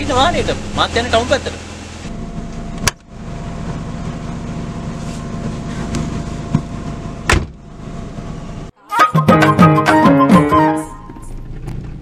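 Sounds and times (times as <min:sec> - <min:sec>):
car engine idling: 0:00.0 - 0:08.7
car door shutting thump: 0:06.5 - 0:07.6.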